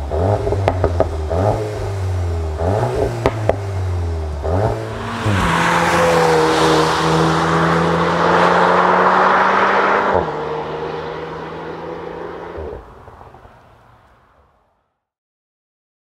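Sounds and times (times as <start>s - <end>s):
car engine running hard: 0.0s - 12.9s.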